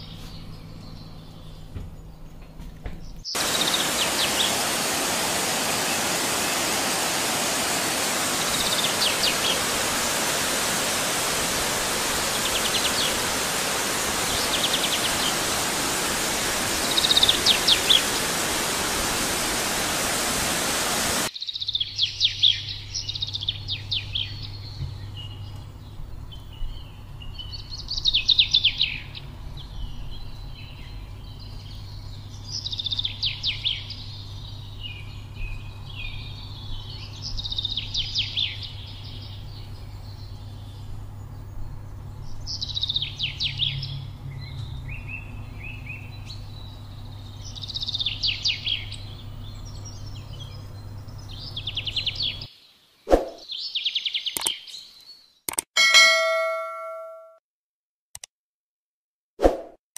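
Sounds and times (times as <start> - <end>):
soft bird chirps: 0.0 - 55.5, 56.1 - 57.4
songbird trilling: 3.2 - 4.7, 16.5 - 18.4.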